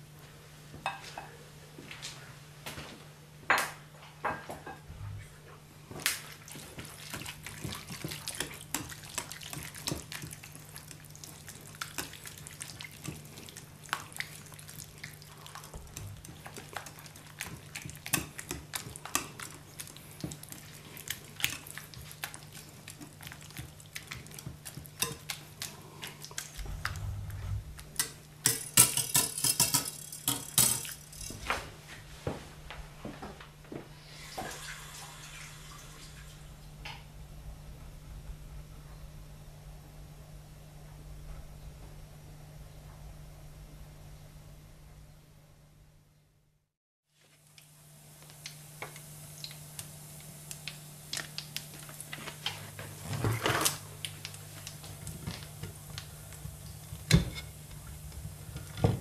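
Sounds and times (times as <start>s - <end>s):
faint low hum: 0.0s - 46.7s.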